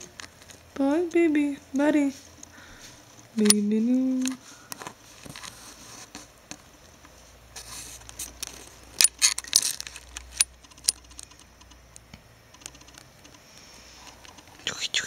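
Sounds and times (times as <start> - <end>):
sharp little clicks and taps: 10.4 - 13.4.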